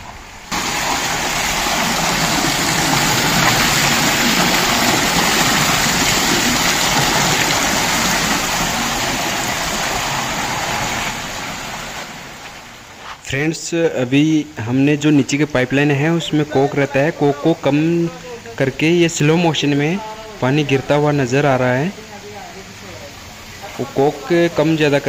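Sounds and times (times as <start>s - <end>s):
fountain water splashing into trough: 0.5s - 12.9s.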